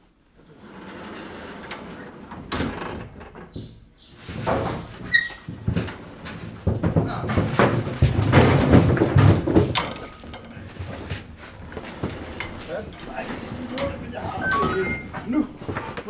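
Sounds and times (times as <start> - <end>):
metal gates clanking and rattling: 0.5 - 15.6
gate squeak: 5.0 - 5.5, 14.3 - 15.3.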